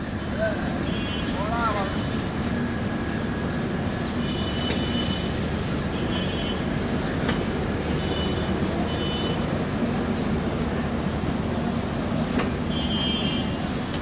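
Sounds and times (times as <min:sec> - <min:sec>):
train wheels rumbling: 0:00.0 - 0:14.0
click over rail joints: 0:07.2 - 0:07.5, 0:12.3 - 0:13.0.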